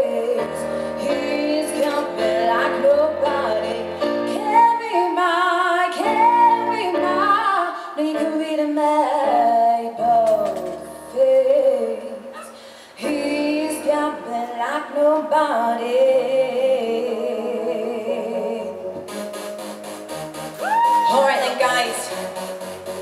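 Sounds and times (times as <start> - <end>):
backing music: 0.0 - 5.1, 18.0 - 23.0
woman singing pop song: 0.0 - 18.8.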